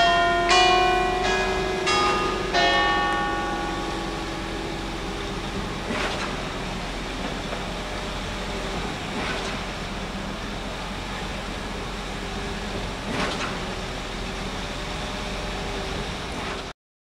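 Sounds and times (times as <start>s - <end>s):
city street traffic: 0.0s - 16.7s.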